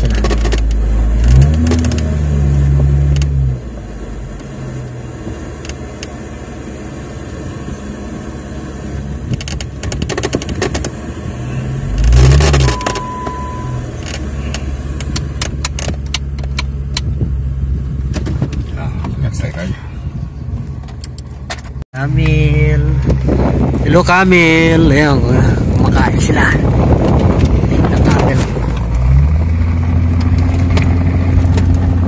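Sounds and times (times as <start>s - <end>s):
clicks and rattles: 0.0s - 0.8s, 9.3s - 10.9s, 14.0s - 17.1s
short high tone: 12.6s - 13.9s.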